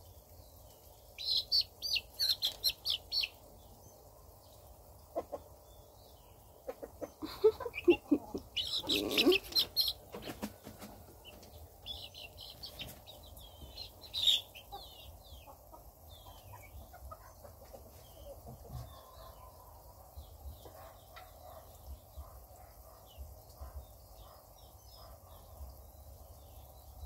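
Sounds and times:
chicks peeping: 0.2s - 27.0s.

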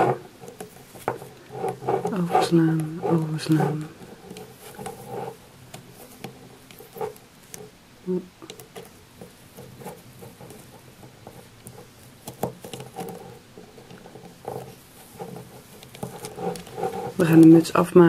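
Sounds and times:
yarn rustling: 0.0s - 17.7s.

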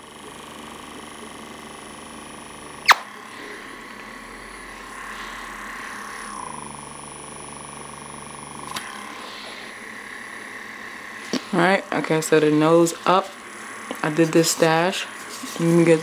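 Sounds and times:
suction motor whining: 2.6s - 16.0s
sharp click: 2.9s - 3.1s.

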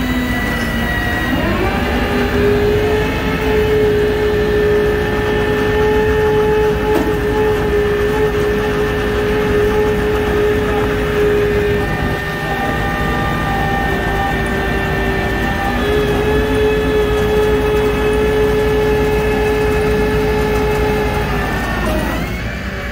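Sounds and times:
steady high whine: 0.0s - 22.9s
truck engine rumbling: 0.0s - 22.9s.

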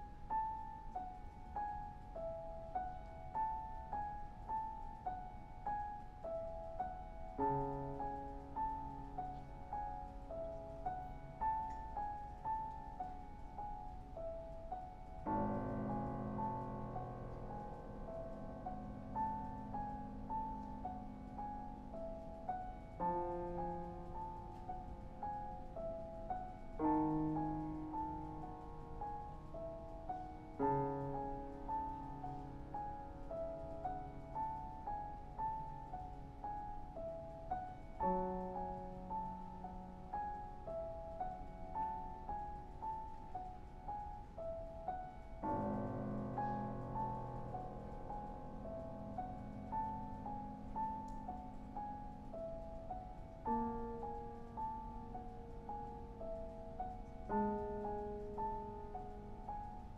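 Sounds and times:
low sustained piano chords: 0.0s - 59.9s
piano single-note melody: 0.0s - 59.9s.

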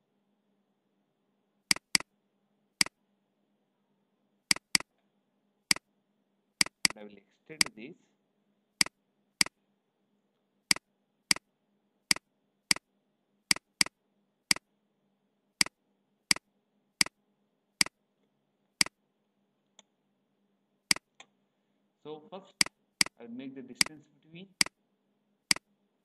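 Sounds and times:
faint low hum: 0.0s - 26.0s
computer mouse button clicking: 1.7s - 2.0s, 4.5s - 4.9s, 6.6s - 7.0s.

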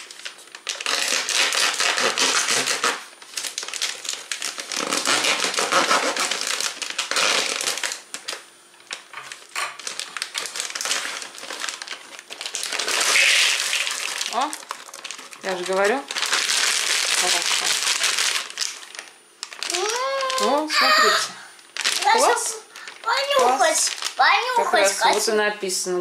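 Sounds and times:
plastic bag crinkling: 0.0s - 25.4s
scissors cutting plastic: 0.6s - 3.0s, 3.6s - 8.4s, 9.2s - 18.8s.

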